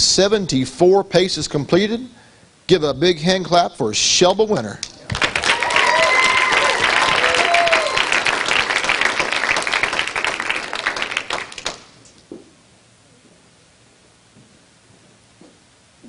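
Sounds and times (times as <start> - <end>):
audience applauding: 5.1 - 11.9.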